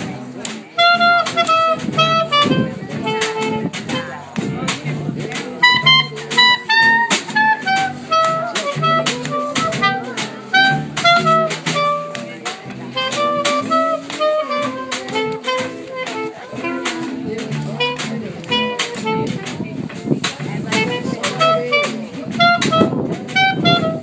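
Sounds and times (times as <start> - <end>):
drum kit cymbal beat: 0.0 - 24.0
upright double bass: 0.0 - 24.0
clarinet melody: 0.7 - 24.0.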